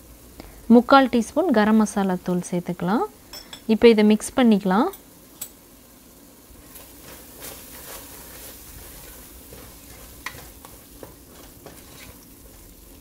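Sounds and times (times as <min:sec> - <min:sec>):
sizzle of frying in oil: 0:00.0 - 0:13.0
spatula scraping and knocking pot: 0:06.8 - 0:12.7.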